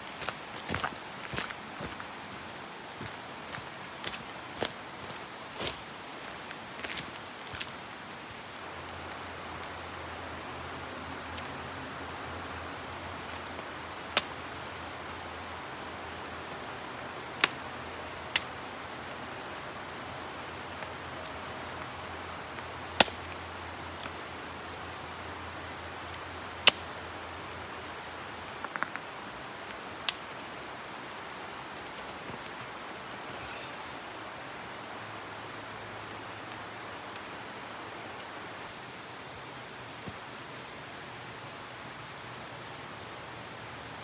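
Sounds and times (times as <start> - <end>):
steady rushing hiss: 0.0 - 44.0.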